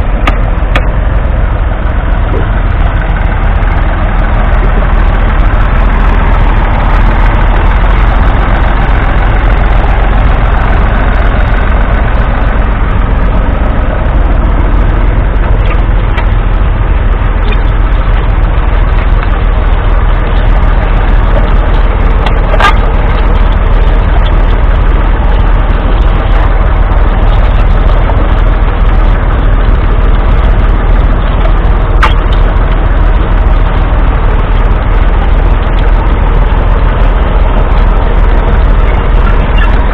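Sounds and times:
tractor diesel engine under load: 0.0 - 39.9
sharp click: 32.0 - 32.4.

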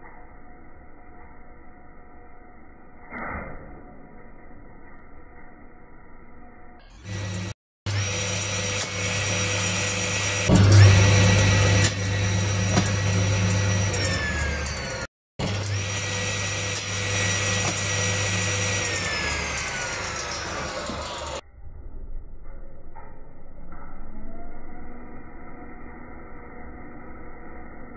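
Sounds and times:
circular saw whining: 0.0 - 21.4, 22.1 - 27.9
low motor hum: 4.1 - 27.9
saw blade coasting to a stop: 15.7 - 21.4.

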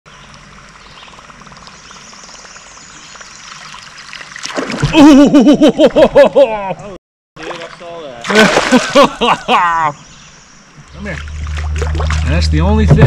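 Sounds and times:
fish splash: 3.5 - 5.0, 7.4 - 9.0, 11.0 - 12.3
lure gurgling on water: 10.9 - 12.5.

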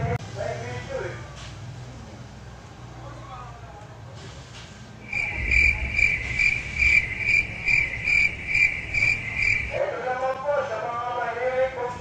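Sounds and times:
insect pulsing trill: 5.0 - 9.8.

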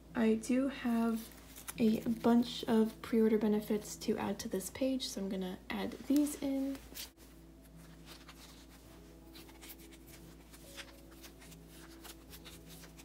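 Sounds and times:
low steady hum: 0.0 - 13.0
cards rustling in plastic sleeves: 1.1 - 2.6, 5.9 - 13.0.

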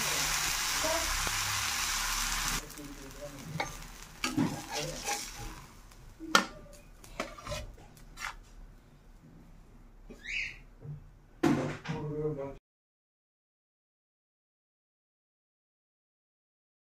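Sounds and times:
food sizzling on hot pan: 0.0 - 6.2
metal spatula scraping pan: 3.4 - 5.7, 7.0 - 8.5.

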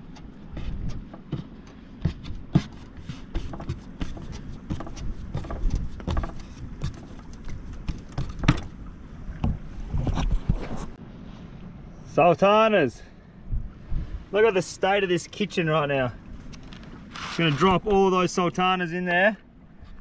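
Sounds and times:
low wind rumble: 0.0 - 12.2, 13.0 - 15.1.

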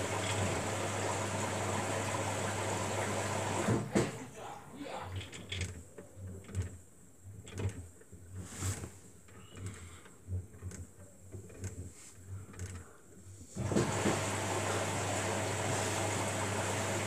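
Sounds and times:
washing machine drum tumbling: 0.0 - 4.2, 13.6 - 17.0.

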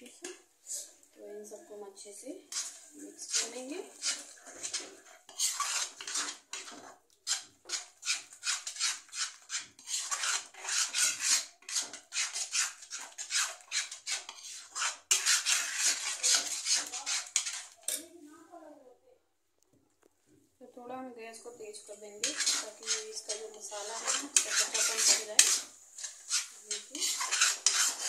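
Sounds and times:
spoon scraping metal pan: 2.4 - 18.1, 21.5 - 28.0.

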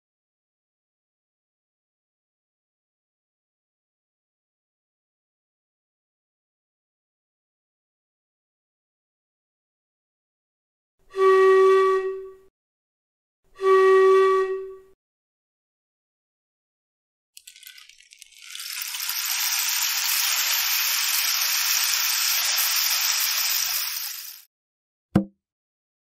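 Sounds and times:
bamboo wind instrument notes: 11.1 - 12.5, 13.5 - 15.0
hissing rattling sound: 17.4 - 24.5.

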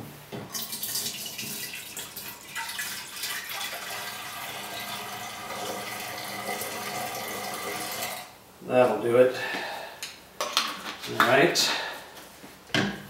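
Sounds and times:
liquid pouring into glass flask: 0.5 - 8.3.

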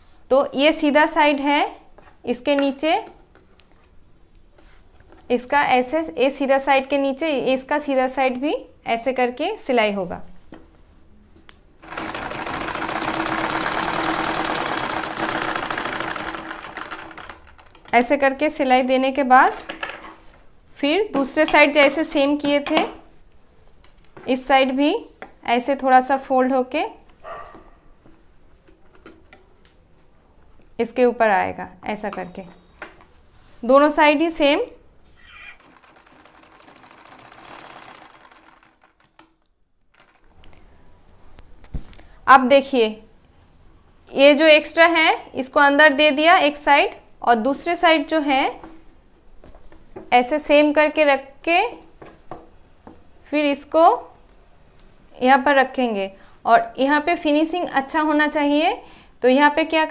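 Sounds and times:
sewing machine running: 11.8 - 17.8, 35.4 - 39.2.

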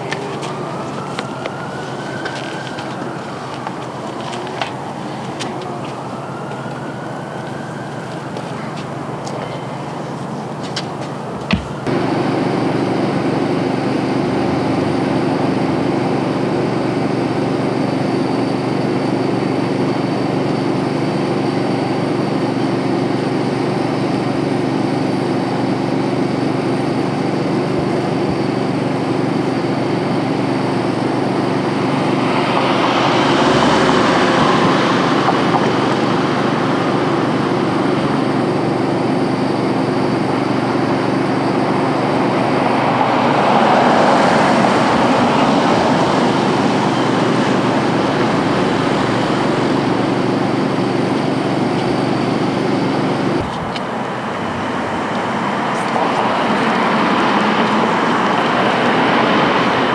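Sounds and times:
vehicle engine idling hum: 27.7 - 59.9.

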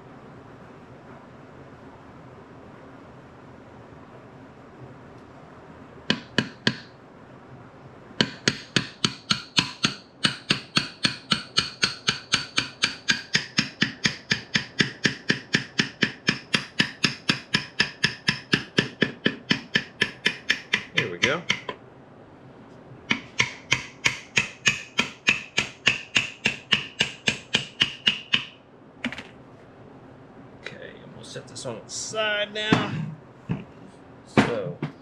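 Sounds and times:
hammer tapping on metal: 6.1 - 6.9, 8.2 - 21.8, 23.1 - 28.6.

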